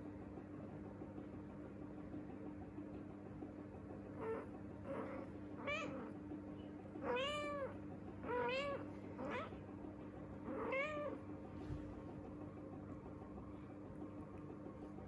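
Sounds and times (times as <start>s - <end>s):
kittens mewing: 4.2s - 6.2s, 7.0s - 9.6s, 10.3s - 11.2s.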